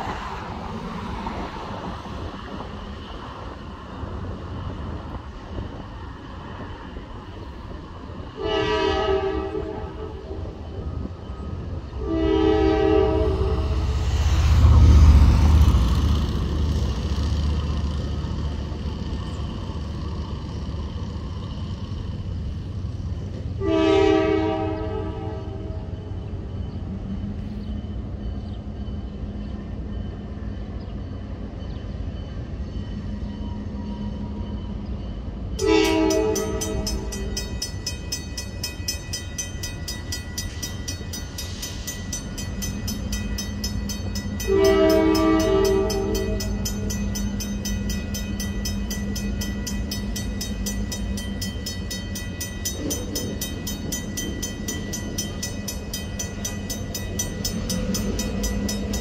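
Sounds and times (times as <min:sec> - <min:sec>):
locomotive air horn blasts: 0:08.4 - 0:10.4, 0:12.0 - 0:13.9, 0:23.6 - 0:26.0, 0:35.6 - 0:37.1, 0:44.5 - 0:46.6
crossing bell ringing: 0:23.3 - 0:59.0.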